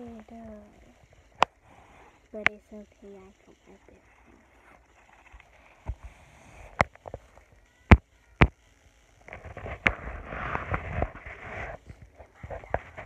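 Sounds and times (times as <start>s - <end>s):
rubbing and rustling: 9.3s - 13.0s.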